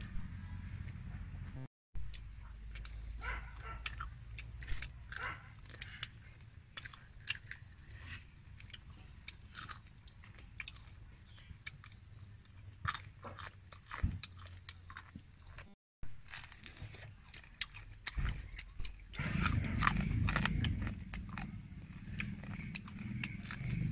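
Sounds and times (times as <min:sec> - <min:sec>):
chewing crunchy food: 0:00.8 - 0:23.9.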